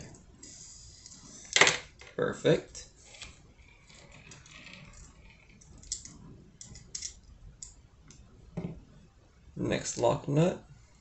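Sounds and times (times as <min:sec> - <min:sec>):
small metal parts clicking: 0:03.2 - 0:07.8.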